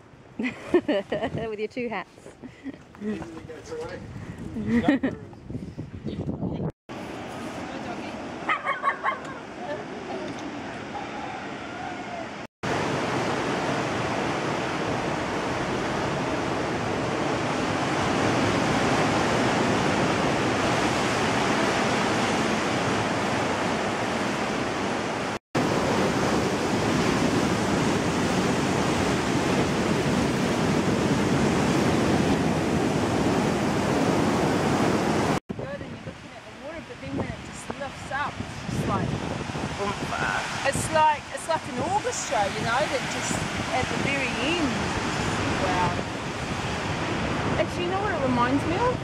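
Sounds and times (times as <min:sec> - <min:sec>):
surf breaking on rocks: 0:12.6 - 0:35.7, 0:36.6 - 0:49.0.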